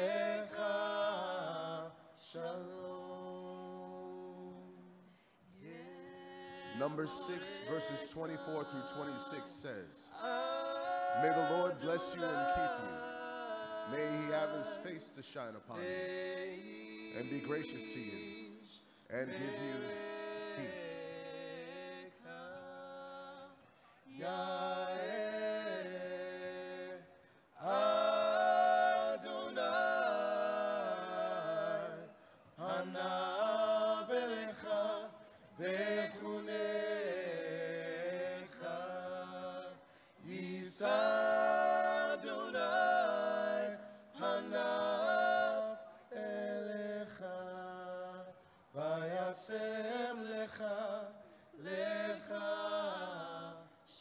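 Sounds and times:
vocal trio singing in harmony: 0.0s - 54.0s.

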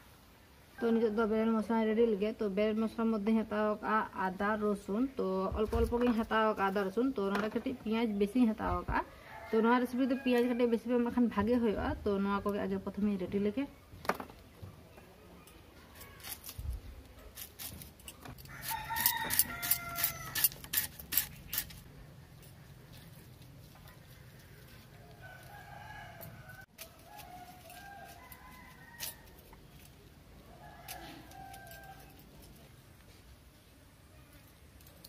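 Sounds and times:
rooster crowing: 18.4s - 20.6s, 24.2s - 29.6s, 30.4s - 32.4s.

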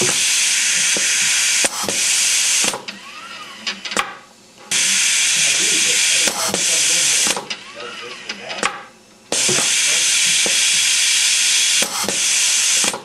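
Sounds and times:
loud air hiss: 0.0s - 2.8s, 4.7s - 7.4s, 9.4s - 13.0s
machine axis whine: 0.0s - 13.0s.

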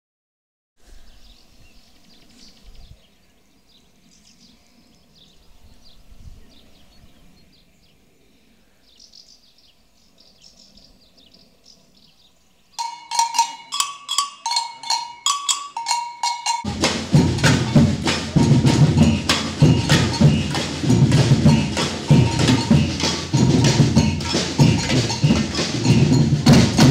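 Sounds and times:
wood-block clicks: 12.8s - 16.7s
drums playing loudly: 12.8s - 26.9s.

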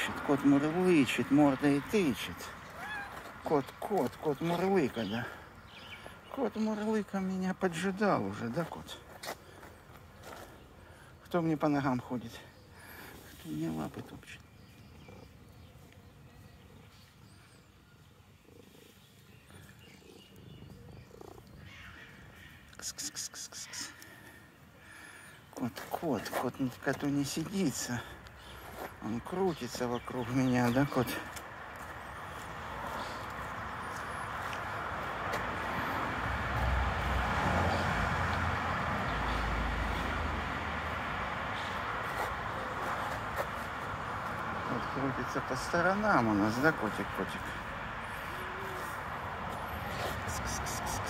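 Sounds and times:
cat purring: 14.9s - 15.6s, 18.4s - 21.7s
vehicle rumble and hiss: 31.3s - 51.0s.

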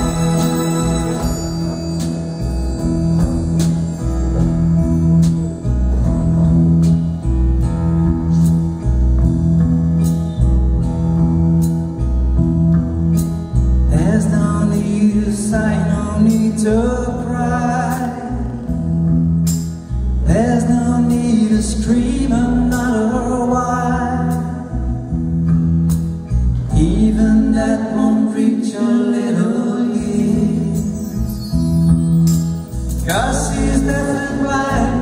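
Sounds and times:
live band playing: 0.0s - 35.0s
person singing: 33.0s - 35.0s.

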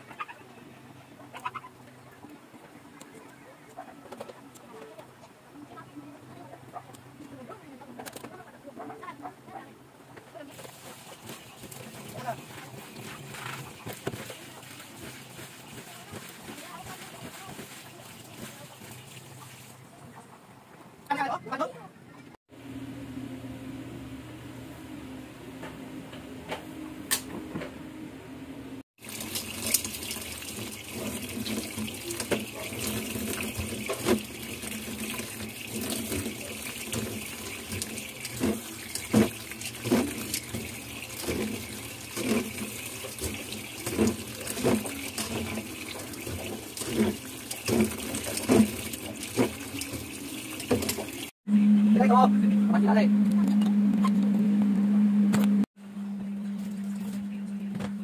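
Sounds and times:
small knocks and splashes: 10.5s - 19.9s, 29.0s - 51.3s
tap water running and splashing: 10.5s - 19.9s, 29.0s - 51.4s
steady low hum: 51.5s - 58.0s.

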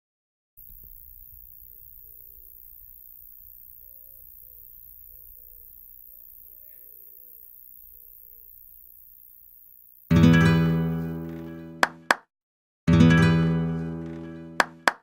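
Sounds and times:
birds calling: 0.6s - 10.1s.

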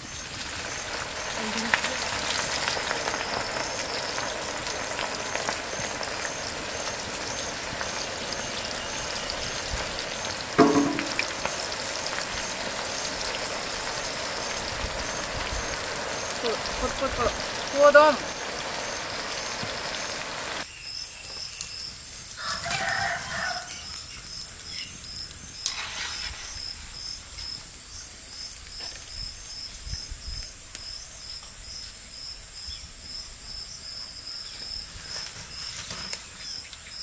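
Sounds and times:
rooster crowing: 22.4s - 24.0s.

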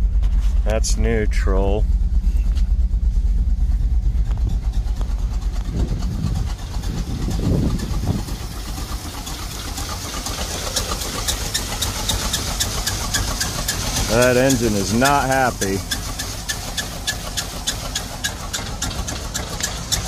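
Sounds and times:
truck engine idling roughly: 0.0s - 20.0s
regular ticking: 1.0s - 20.0s.

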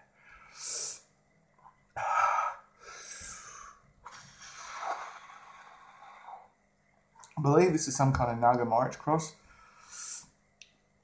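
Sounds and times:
man breathing hard: 2.0s - 6.5s.

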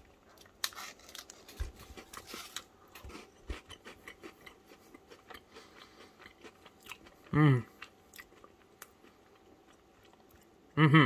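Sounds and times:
foil wrapper crinkling: 0.6s - 2.7s.

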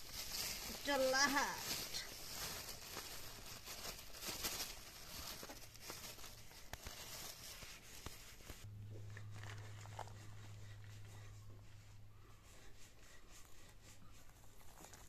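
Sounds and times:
plastic bag crinkling: 0.0s - 11.0s, 14.3s - 15.0s
low steady hum: 5.6s - 14.6s.

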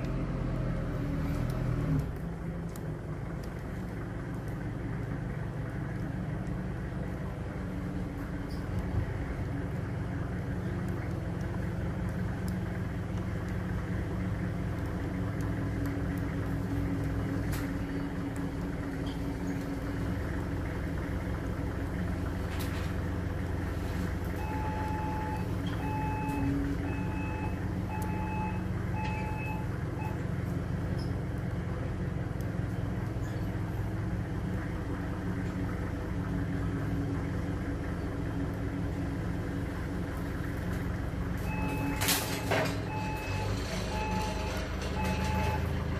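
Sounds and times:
forklift engine running: 0.0s - 45.9s
warning beeps: 24.4s - 30.2s, 41.4s - 45.8s.

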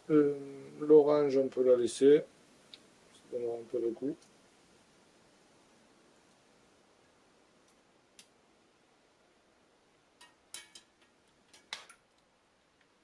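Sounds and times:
metal tongs clinking on pots: 10.2s - 12.0s.

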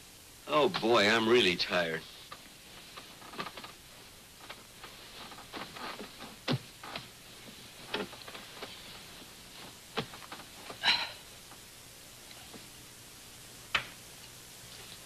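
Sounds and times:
film soundtrack hiss: 0.0s - 15.0s
bedclothes rustling: 1.9s - 11.1s.

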